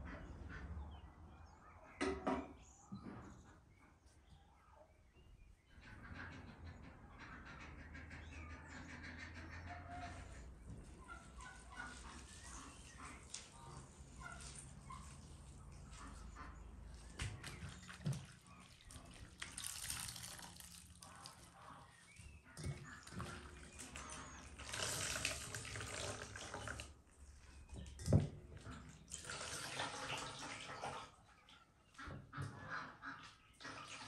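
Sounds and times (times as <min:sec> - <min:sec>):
juice splashing into a basin: 0:17.7 - 0:21.6, 0:23.0 - 0:27.0, 0:29.1 - 0:31.1.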